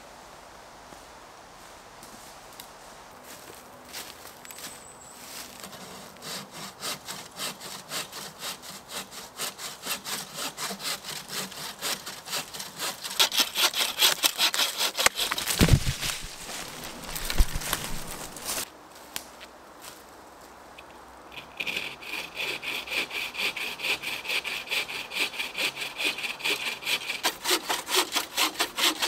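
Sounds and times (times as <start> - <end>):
saw cutting wood: 5.6 - 18.7, 21.3 - 29.0
tree cracking and thudding: 14.4 - 18.7.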